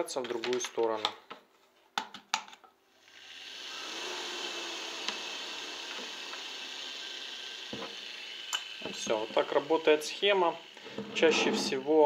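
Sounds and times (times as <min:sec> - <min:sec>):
electric motor whirring: 0:03.0 - 0:12.0.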